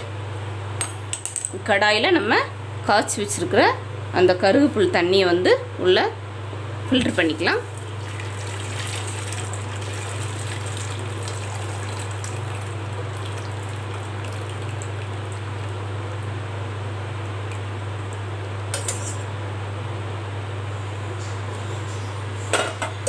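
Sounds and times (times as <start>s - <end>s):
low steady hum: 0.0s - 23.0s
water pouring through strainer: 7.8s - 15.8s.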